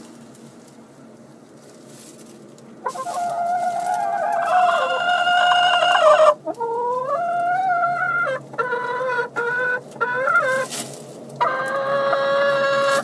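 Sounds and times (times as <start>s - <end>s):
chickens calling: 2.8s - 13.0s.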